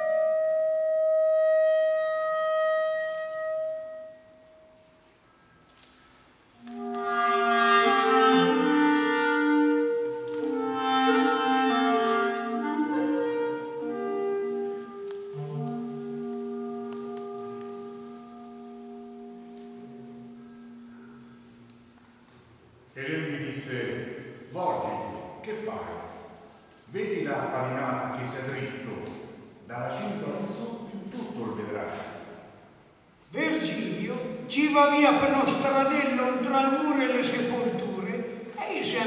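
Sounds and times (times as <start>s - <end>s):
clarinet melody: 0.0s - 22.9s.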